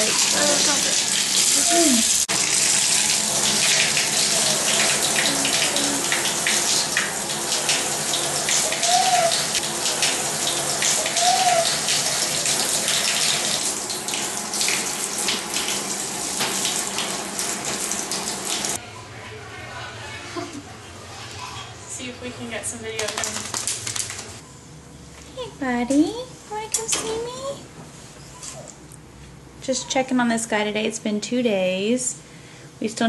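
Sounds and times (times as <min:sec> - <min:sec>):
shower sprayer hissing: 0:00.0 - 0:18.8.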